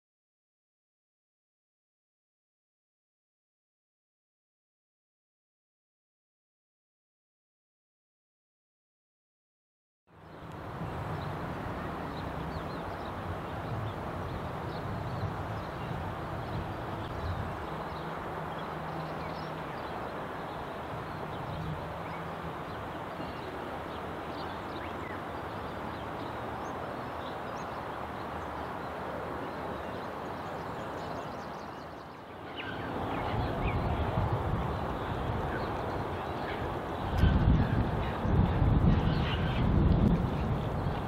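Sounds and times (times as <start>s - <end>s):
distant background noise: 10.2s - 38.3s
bird chirps: 29.8s - 33.9s
wind rushing: 32.8s - 36.2s, 36.8s - 41.0s.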